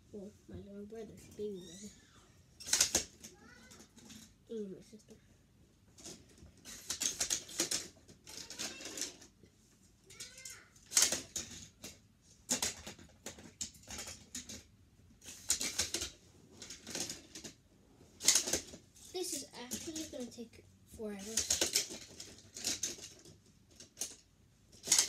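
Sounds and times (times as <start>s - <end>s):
toy cars clattering: 2.6s - 4.4s, 6.0s - 9.4s, 10.1s - 17.6s, 18.2s - 20.5s, 21.2s - 25.0s.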